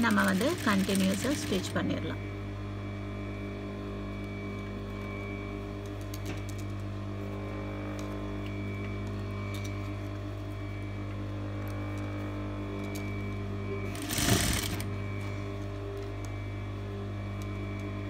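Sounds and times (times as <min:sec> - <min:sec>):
sewing machine stitching: 0:00.0 - 0:01.7, 0:13.9 - 0:14.9
sewing machine motor hum: 0:00.0 - 0:02.4, 0:04.1 - 0:18.0.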